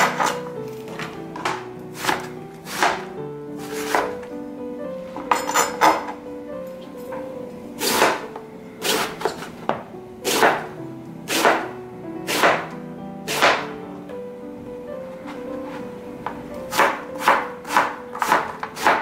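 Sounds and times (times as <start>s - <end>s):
background music: 0.0s - 19.0s
knife slicing on cutting board: 2.0s - 3.0s, 3.6s - 4.2s, 8.8s - 9.3s, 10.2s - 10.6s, 11.3s - 11.6s.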